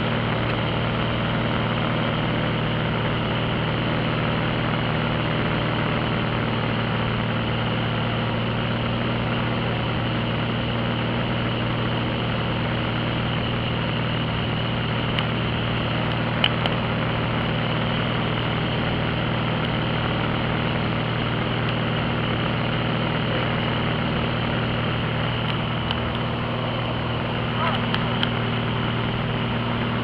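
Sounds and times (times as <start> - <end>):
propeller airplane engine drone: 0.0 - 30.0.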